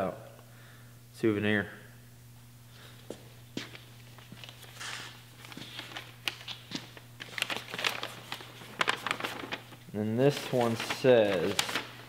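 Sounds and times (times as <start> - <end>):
steady low hum: 0.0 - 12.0
paper rustling: 3.7 - 12.0.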